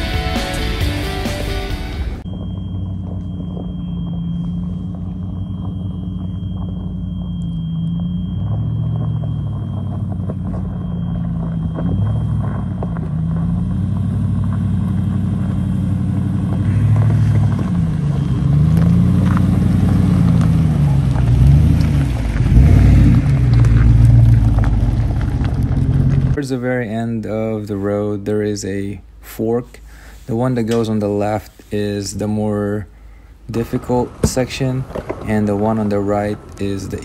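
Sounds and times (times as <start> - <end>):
pickup truck engine revving: 0.0 - 26.4
tyres crackling over gravel: 2.4 - 28.1, 30.0 - 37.0.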